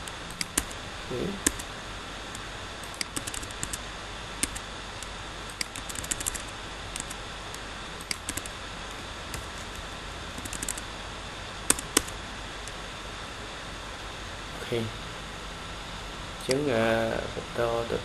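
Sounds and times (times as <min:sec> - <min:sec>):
sharp clicks: 0:00.0 - 0:00.8, 0:02.3 - 0:03.8, 0:04.4 - 0:08.5, 0:11.7 - 0:12.8
typing on computer keyboard: 0:00.0 - 0:00.8, 0:01.4 - 0:01.7, 0:02.8 - 0:03.8, 0:04.4 - 0:04.6, 0:05.5 - 0:07.2, 0:08.0 - 0:08.5, 0:10.4 - 0:10.8, 0:11.7 - 0:12.1.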